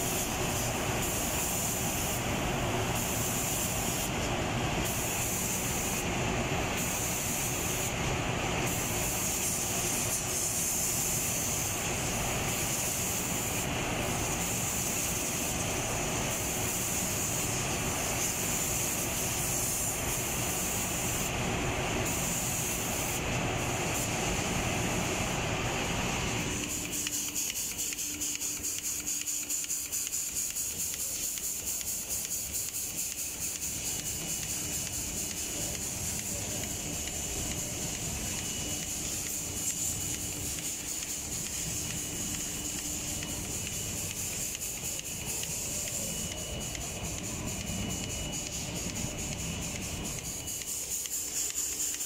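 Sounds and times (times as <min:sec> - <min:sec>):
spray painting machine hiss: 0:00.0 - 0:52.0.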